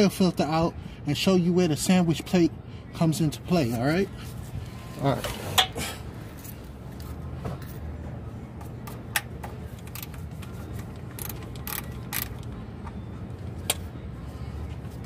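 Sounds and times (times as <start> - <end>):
ratchet metallic clicks: 11.1 - 12.5.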